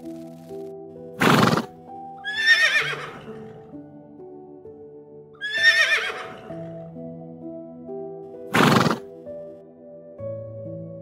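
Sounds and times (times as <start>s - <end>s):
soft background music: 0.0s - 11.0s
horse whinnying: 1.2s - 3.6s, 5.4s - 6.7s, 8.5s - 9.1s.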